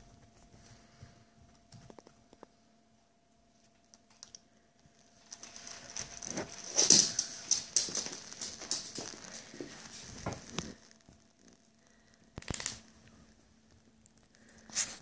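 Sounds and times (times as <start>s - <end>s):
dog paws scuffing on sofa: 5.4s - 10.8s.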